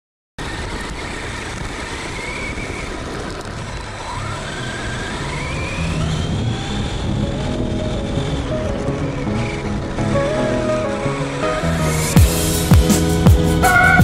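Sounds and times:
tyre and rattle noise on asphalt: 0:00.4 - 0:10.2
electric drivetrain whine rising: 0:00.4 - 0:14.0.

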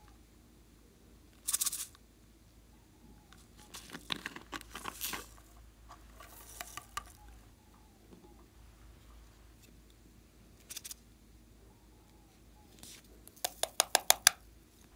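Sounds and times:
plastic clicks and crackles: 0:03.6 - 0:05.5, 0:06.2 - 0:07.3.

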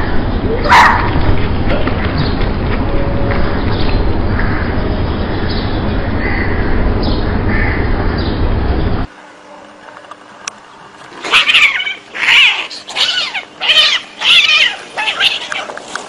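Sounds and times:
heavy low rumble: 0:00.0 - 0:09.1
cats yowling: 0:11.2 - 0:16.0.

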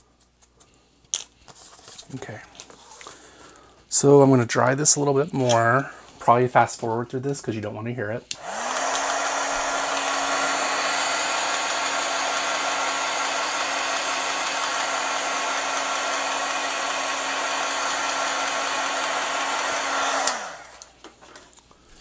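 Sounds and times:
heat tool air rush: 0:08.3 - 0:21.0
motor hum: 0:08.4 - 0:20.9.

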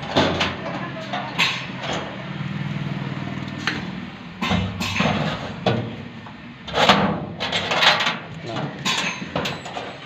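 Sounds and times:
metal cabinet doors clanking: 0:04.4 - 0:06.0.

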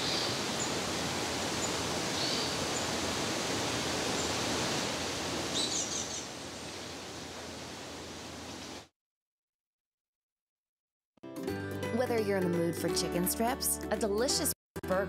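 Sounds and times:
steady rushing hiss: 0:00.0 - 0:08.8.

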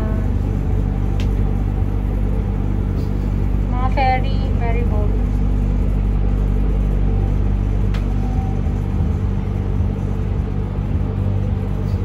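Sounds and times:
low mechanical rumble and hum: 0:00.0 - 0:12.0.

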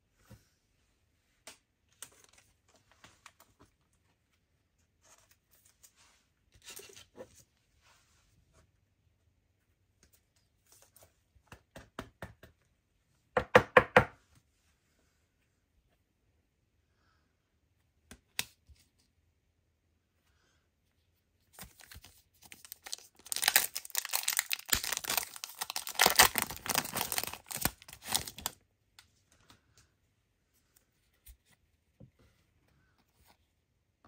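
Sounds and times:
card sleeve rustles: 0:21.5 - 0:28.6.

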